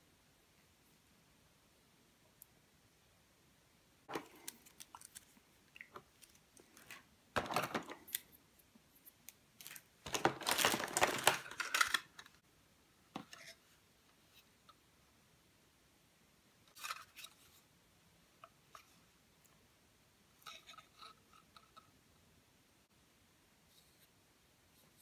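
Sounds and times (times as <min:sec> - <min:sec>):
plastic tray rustling and scraping: 0:06.7 - 0:08.1, 0:10.1 - 0:12.3
plastic parts clicking: 0:09.6 - 0:12.4.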